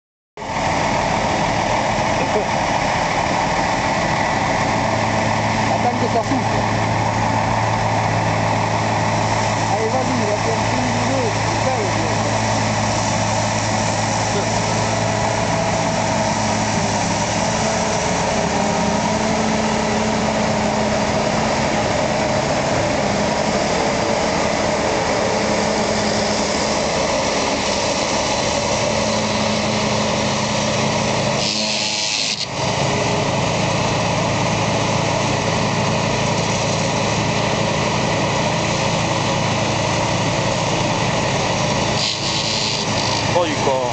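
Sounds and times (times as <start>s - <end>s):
tractor engine running: 0.4s - 43.9s
forage harvester chopping grass: 29.6s - 33.2s, 40.4s - 43.9s.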